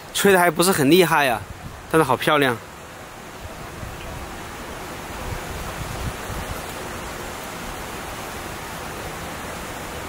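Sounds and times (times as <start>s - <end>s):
mountain stream rushing: 0.0s - 10.0s
wind buffeting microphone: 1.3s - 2.0s, 3.3s - 8.6s.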